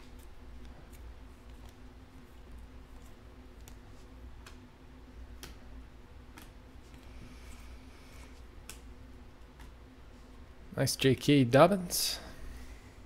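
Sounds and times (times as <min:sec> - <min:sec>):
faint low hum: 0:00.0 - 0:13.0
cards clicking through a stack: 0:06.3 - 0:07.0.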